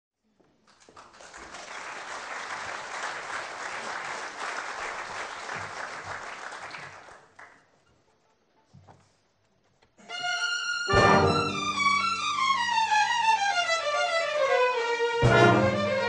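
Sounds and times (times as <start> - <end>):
audience applauding: 0.6 - 7.8.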